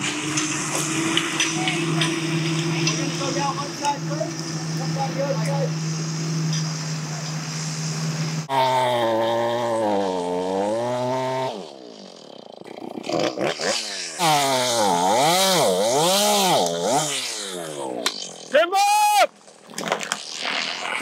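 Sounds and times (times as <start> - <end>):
chainsaw cutting tree trunk: 0.0 - 6.7, 8.4 - 18.5.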